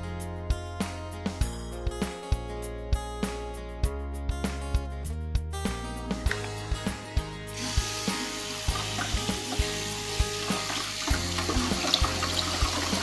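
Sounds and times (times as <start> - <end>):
background music with beat: 0.0 - 13.0
tap water splashing into tub: 10.4 - 13.0.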